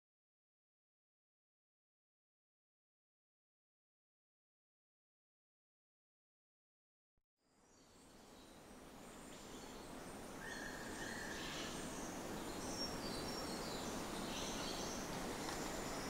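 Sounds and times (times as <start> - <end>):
background hiss: 7.4 - 16.0
birds chirping: 7.9 - 16.0
insect calls: 9.0 - 16.0.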